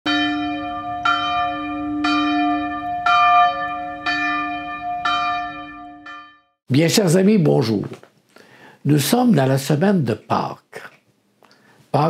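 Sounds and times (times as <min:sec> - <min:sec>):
church bell tolling: 0:00.1 - 0:06.5.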